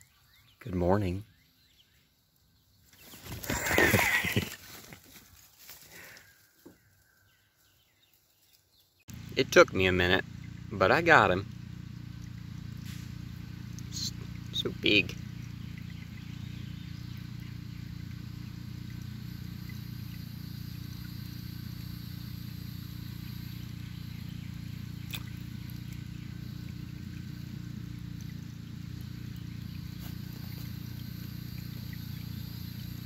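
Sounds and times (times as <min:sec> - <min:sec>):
faint high insect buzz: 0:11.4 - 0:33.0.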